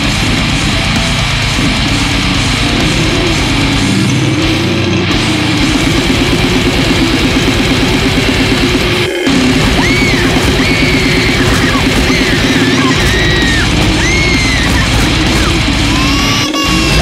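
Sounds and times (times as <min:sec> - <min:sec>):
death metal music: 0:00.0 - 0:17.0.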